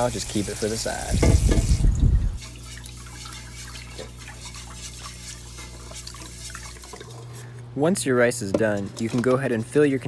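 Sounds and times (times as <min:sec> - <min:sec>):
tap running into pot: 0:01.1 - 0:01.8
water swishing and dripping: 0:01.2 - 0:07.2.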